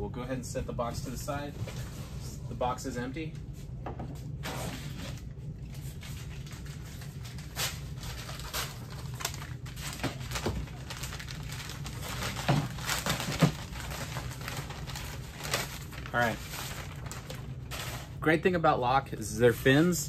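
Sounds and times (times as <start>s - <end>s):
steady low hum: 0.0s - 20.0s
paper packaging crinkling: 4.8s - 18.3s.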